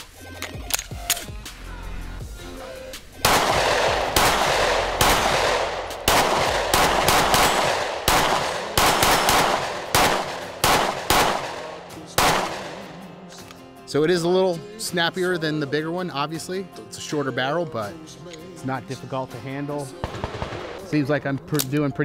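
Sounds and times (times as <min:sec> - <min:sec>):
pistol shots: 0:03.2 - 0:13.1, 0:20.0 - 0:20.9.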